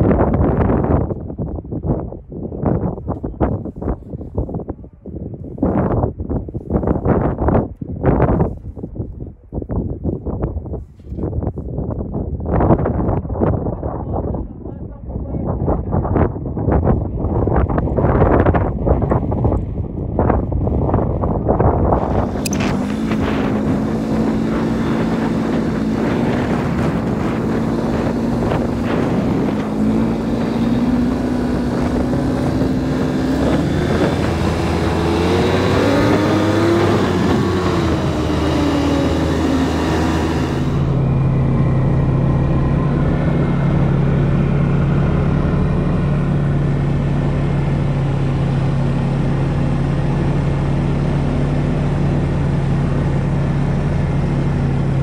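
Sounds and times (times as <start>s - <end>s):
snowmobile engine running: 20.2s - 55.0s.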